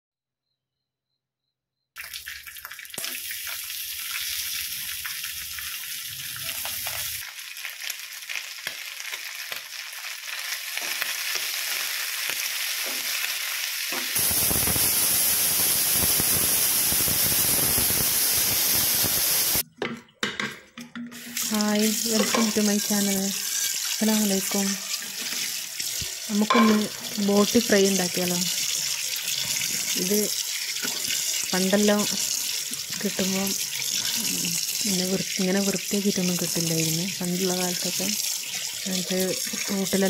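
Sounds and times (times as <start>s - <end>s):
tripe sizzling in a pan: 2.0s - 19.6s, 21.2s - 40.0s
steady hiss: 14.2s - 19.6s.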